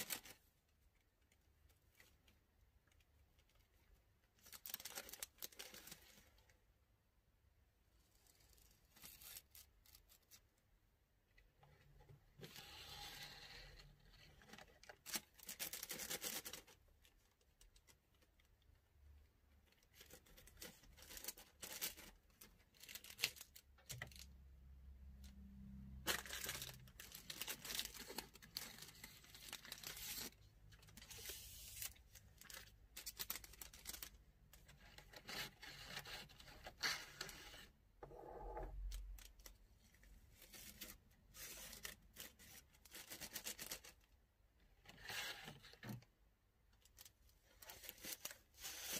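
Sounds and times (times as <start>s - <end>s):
plastic bag crinkling: 26.0s - 34.7s.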